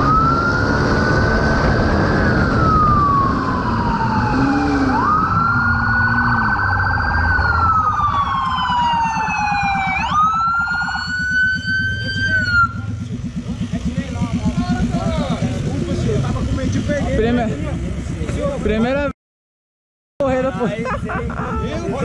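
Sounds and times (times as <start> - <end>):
police siren wailing: 0.0 - 12.9
motorcycle engine running: 8.2 - 18.7.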